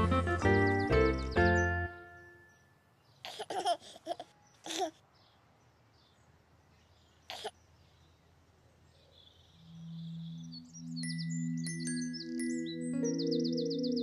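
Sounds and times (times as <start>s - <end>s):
baby giggling and cooing: 3.2s - 5.0s.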